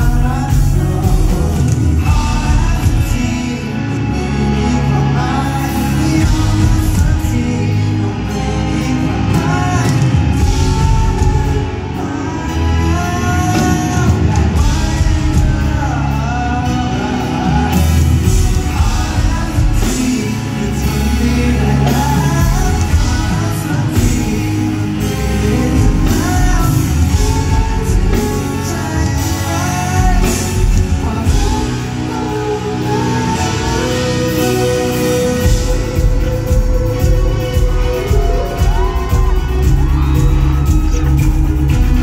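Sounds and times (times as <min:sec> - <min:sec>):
lead singer singing: 0:00.0 - 0:42.0
live rock band playing: 0:00.0 - 0:42.0.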